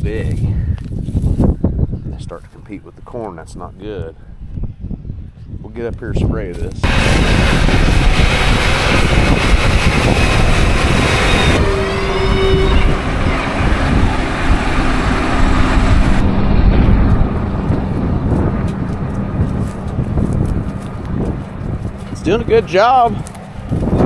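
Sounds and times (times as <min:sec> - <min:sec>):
brief rising whine: 0:06.8 - 0:19.9.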